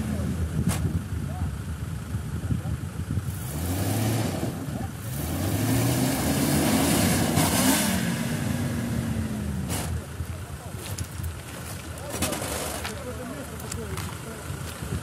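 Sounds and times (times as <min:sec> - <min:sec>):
jeep engine revving hard: 0:03.2 - 0:10.0.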